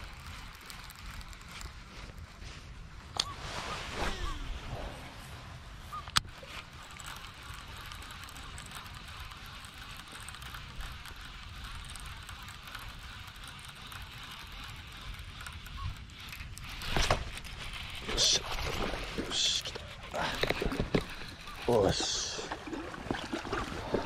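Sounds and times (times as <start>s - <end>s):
fishing reel spool whirring: 0.0s - 2.4s, 6.1s - 24.0s
reeling with whirring tick: 0.0s - 3.4s, 5.8s - 24.0s
low wind rumble: 0.0s - 6.0s
sharp reel click: 6.1s - 22.2s.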